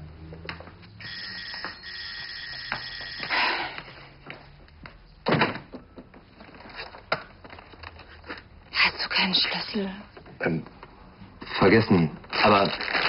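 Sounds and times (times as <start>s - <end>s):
electronic doorbell ringing: 1.0s - 3.8s.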